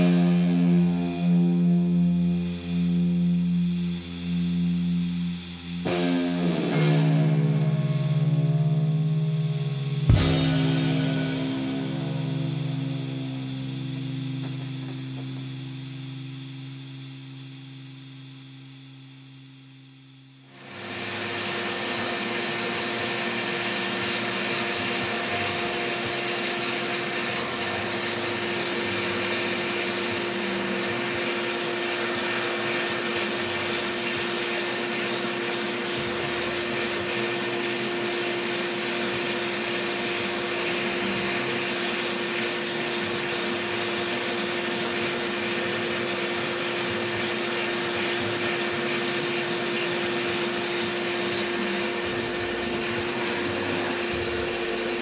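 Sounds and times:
coolant hissing: 20.6 - 55.0
milling machine whirring: 20.6 - 55.0.

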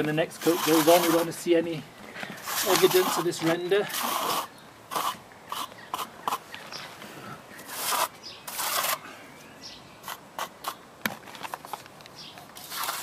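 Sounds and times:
trowel scraping wet render: 0.0 - 1.4, 2.3 - 6.4, 7.6 - 9.0, 12.6 - 13.0.

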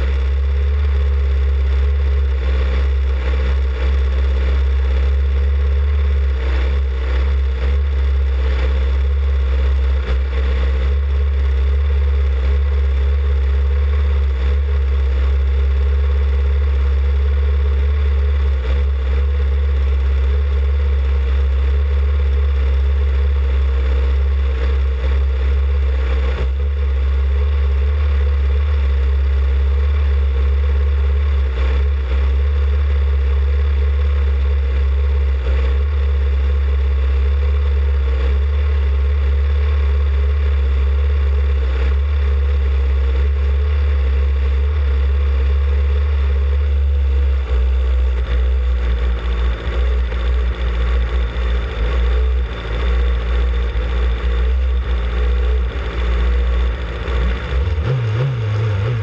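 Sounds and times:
race car engine droning: 0.0 - 59.0.

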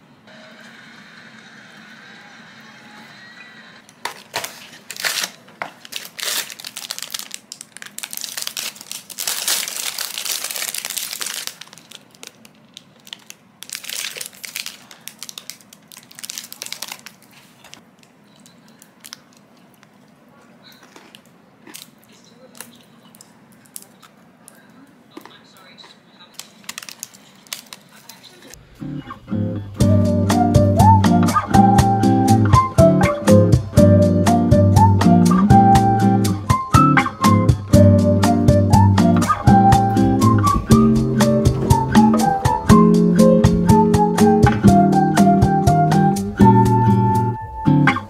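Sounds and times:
foil wrapper crinkling: 4.0 - 19.8, 26.3 - 28.6.

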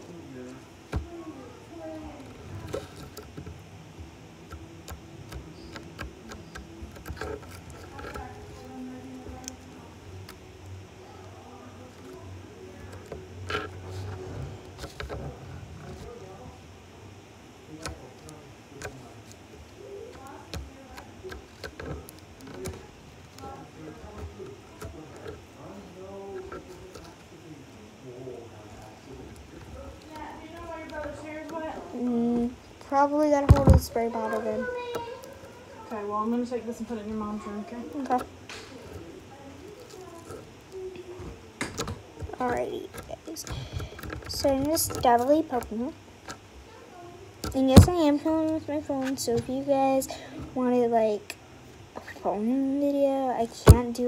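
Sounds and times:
fingers tapping phone: 4.4 - 10.6.

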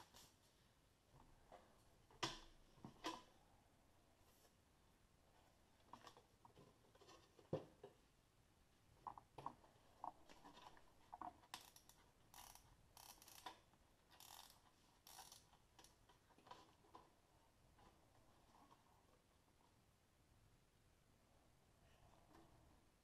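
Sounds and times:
small clicks: 10.3 - 17.0.

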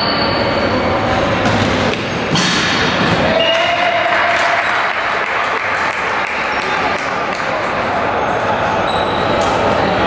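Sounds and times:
players' voices: 0.5 - 10.0
shoes squeaking on court: 8.8 - 9.8.

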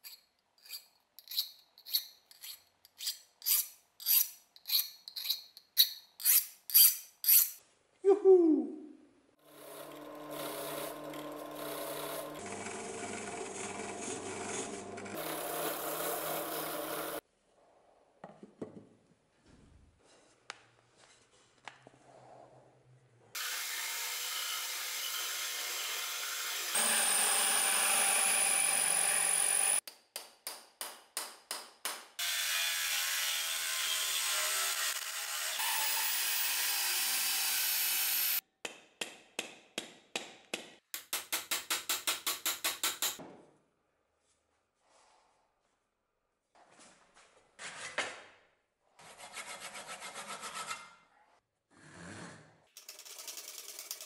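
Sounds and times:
wire wheel brush spinning: 9.4 - 17.2.

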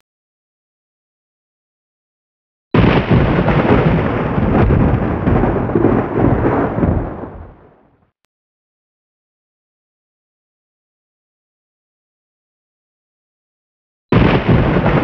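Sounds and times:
thunder crack and rumble: 2.8 - 8.0, 14.1 - 15.0.

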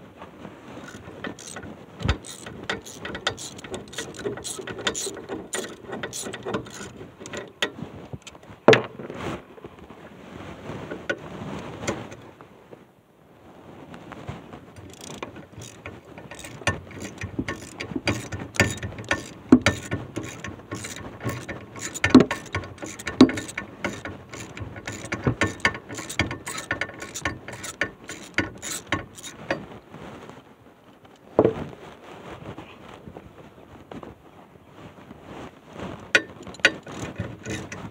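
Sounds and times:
socket ratchet clicking: 0.8 - 7.5, 14.8 - 29.6, 36.2 - 37.8.

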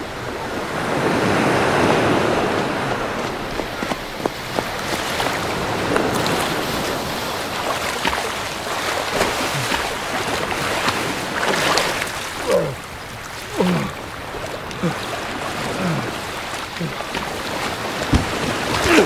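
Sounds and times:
surf washing: 0.0 - 19.0
footsteps splashing through water: 2.9 - 19.0
man grunting: 12.4 - 12.8, 13.5 - 14.0, 14.7 - 16.2, 16.8 - 17.0, 18.8 - 19.0.

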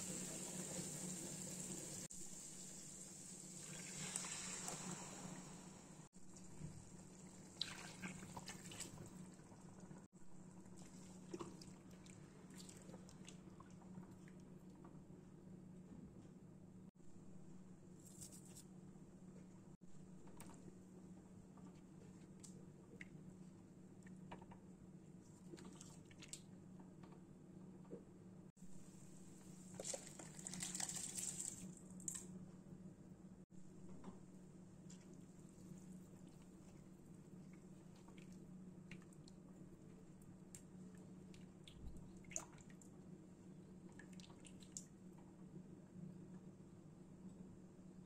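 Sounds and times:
low steady hum: 0.0 - 48.0
broth sloshing while stirred: 7.1 - 14.4.

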